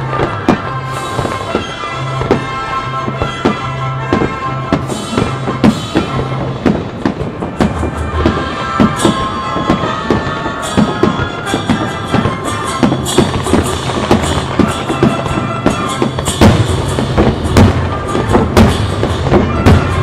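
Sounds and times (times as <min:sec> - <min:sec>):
fireworks banging: 0:00.0 - 0:20.0
music: 0:00.0 - 0:20.0.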